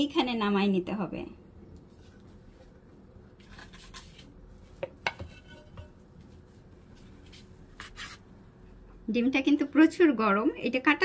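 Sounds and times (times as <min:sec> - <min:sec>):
frying pan knocking and scraping: 0:04.8 - 0:06.0.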